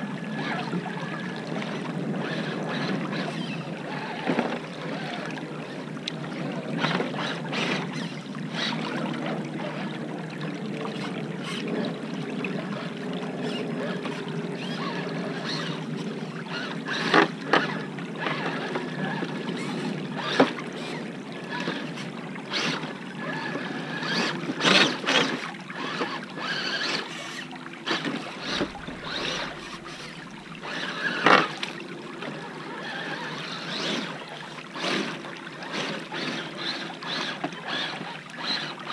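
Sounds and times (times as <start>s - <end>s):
toy truck splashing and knocking: 2.2s - 5.2s, 6.4s - 9.8s, 11.0s - 11.8s, 13.4s - 21.0s, 21.6s - 38.9s
water running over stones: 12.7s - 38.9s.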